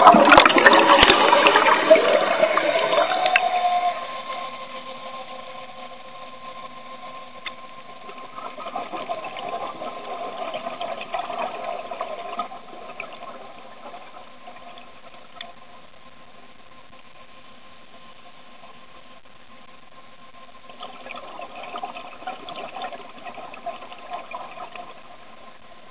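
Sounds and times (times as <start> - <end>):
gurgling air bubbles: 0.0 - 3.4, 8.0 - 15.5, 20.7 - 25.9
underwater electric motor whine: 0.0 - 25.9.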